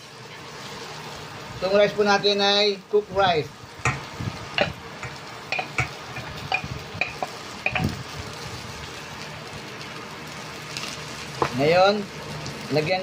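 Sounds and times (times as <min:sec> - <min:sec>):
food sizzling in a pan: 0:00.0 - 0:13.0
ceramic bowl knocking on metal pan: 0:03.8 - 0:07.9.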